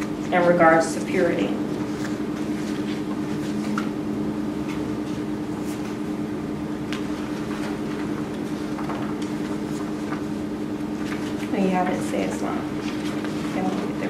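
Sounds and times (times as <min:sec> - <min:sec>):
steady low hum: 0:00.0 - 0:14.0
book pages rustling: 0:01.7 - 0:04.0, 0:04.6 - 0:06.1, 0:06.8 - 0:14.0.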